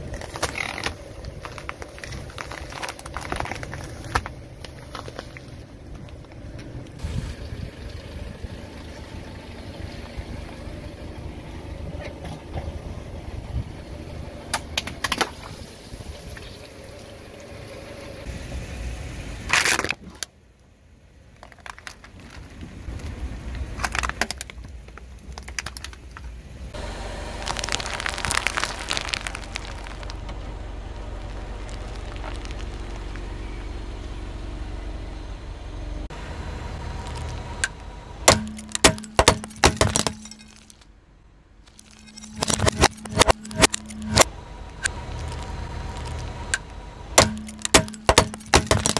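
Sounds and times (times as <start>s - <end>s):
containers cracking: 0.0s - 5.5s, 23.8s - 26.2s, 27.2s - 30.2s, 31.0s - 33.2s, 37.0s - 40.9s, 41.7s - 48.9s
low car rumble: 0.0s - 48.9s
plastic toy crackling and snapping: 23.8s - 26.3s, 27.4s - 30.2s, 31.2s - 33.2s, 38.3s - 40.9s, 41.7s - 46.6s.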